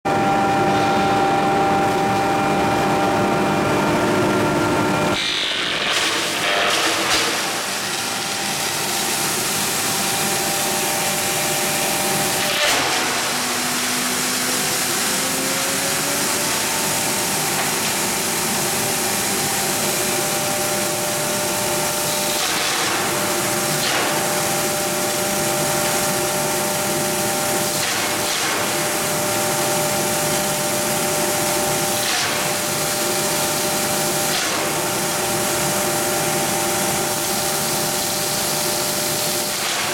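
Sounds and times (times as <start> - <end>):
wood crunching in crusher: 5.2 - 9.1.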